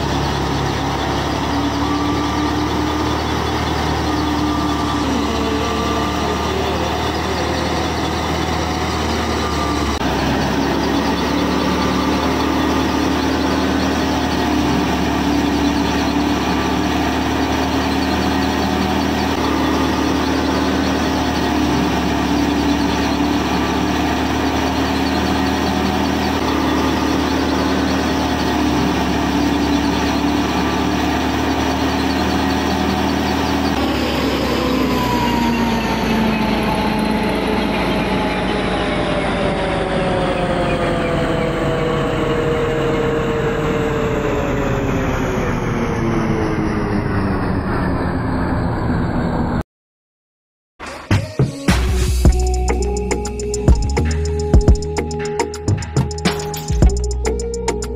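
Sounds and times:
model thresher mechanical hum: 0:00.0 - 0:45.9.

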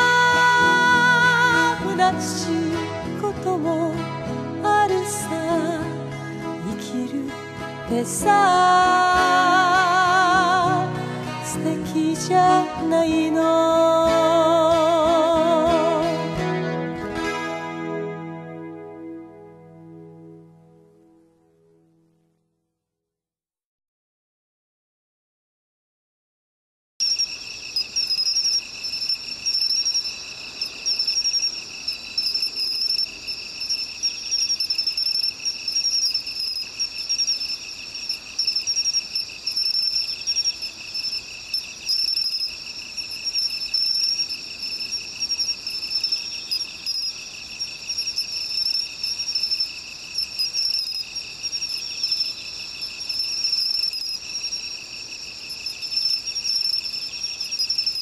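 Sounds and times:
crickets trilling: 0:00.0 - 0:16.2, 0:27.0 - 0:58.0.

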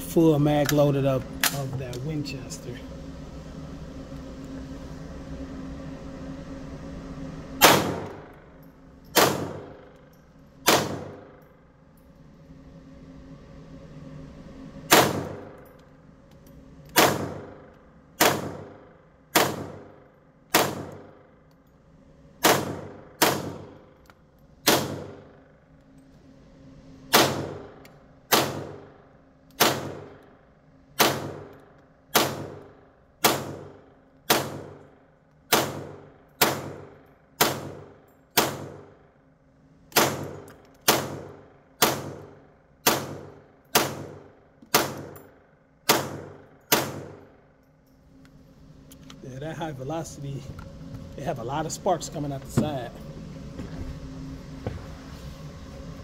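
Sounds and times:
rifle shots with echo: 0:07.6 - 0:08.4, 0:09.2 - 0:09.9, 0:10.6 - 0:11.4, 0:14.9 - 0:15.6, 0:17.0 - 0:21.2, 0:22.4 - 0:23.8, 0:24.6 - 0:25.4, 0:27.1 - 0:28.9, 0:29.6 - 0:30.2, 0:31.0 - 0:34.8, 0:35.5 - 0:39.0, 0:39.9 - 0:45.2, 0:45.9 - 0:47.3.

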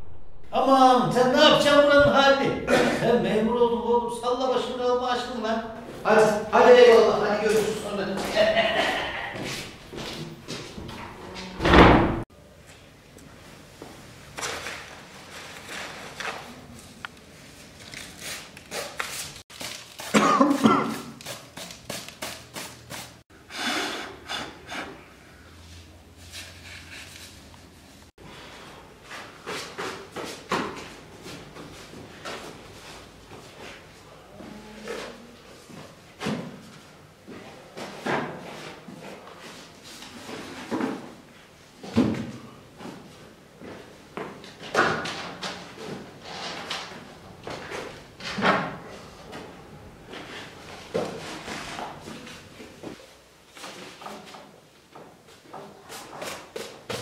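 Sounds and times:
man coughing: 0:02.6 - 0:03.3, 0:20.1 - 0:21.1.

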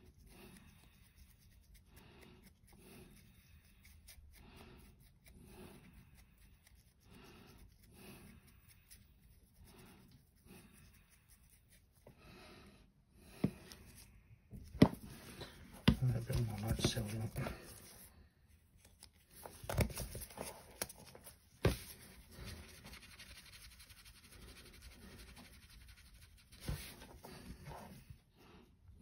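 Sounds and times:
brush scratching on plastic: 0:15.2 - 0:18.1, 0:18.8 - 0:28.1.

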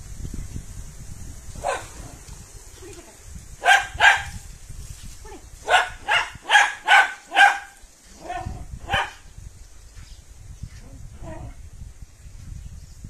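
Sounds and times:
dog barking: 0:01.6 - 0:02.0, 0:03.6 - 0:04.4, 0:05.7 - 0:09.2.

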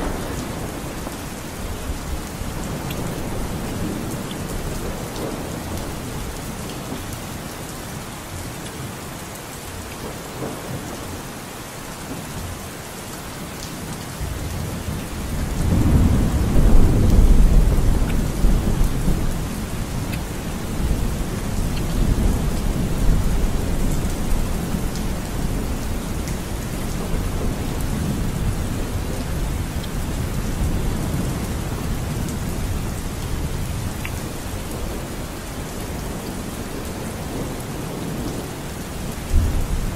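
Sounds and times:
steady rain falling: 0:00.0 - 0:39.9
rolling thunder: 0:14.3 - 0:33.7, 0:39.2 - 0:39.9.

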